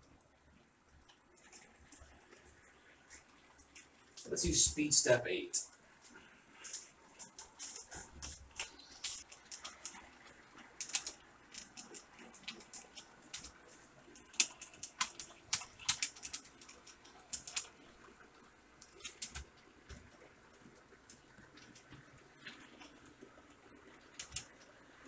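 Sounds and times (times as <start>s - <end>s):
model train wheels clicking: 6.6s - 25.0s.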